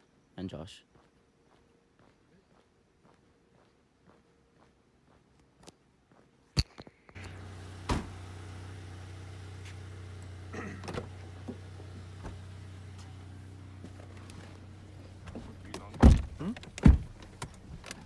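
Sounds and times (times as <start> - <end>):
car engine idling: 7.2 - 18.0
car door shutting thud: 7.8 - 8.4, 10.7 - 12.6, 15.3 - 17.3.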